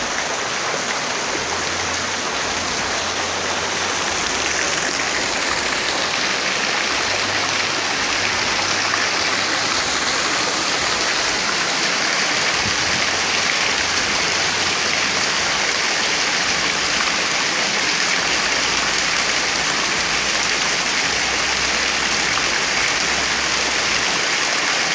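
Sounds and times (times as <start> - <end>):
heavy rain: 0.0 - 24.9.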